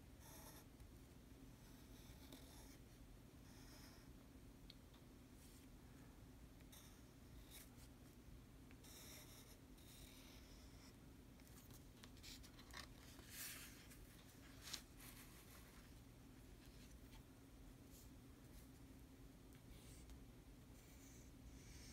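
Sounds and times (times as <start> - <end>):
pen nib scratching on paper: 0.2 - 0.7, 8.8 - 11.0.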